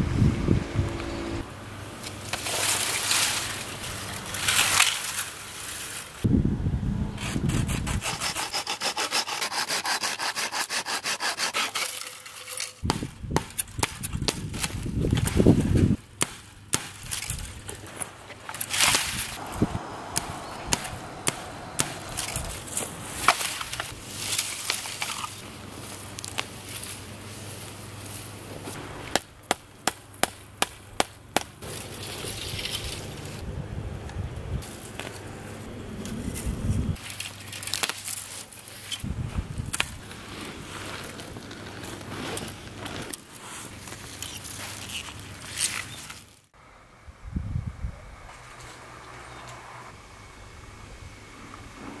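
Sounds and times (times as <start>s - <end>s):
wind rumble on microphone: 0.0s - 1.4s, 6.2s - 8.3s, 12.8s - 16.0s, 19.0s - 24.0s, 32.3s - 34.7s, 35.7s - 37.0s, 39.0s - 40.2s, 47.0s - 48.8s
dry twigs snapping: 2.0s - 6.0s, 12.4s - 27.0s, 36.0s - 39.1s
hand saw cutting stick: 7.2s - 12.8s, 18.8s - 24.0s.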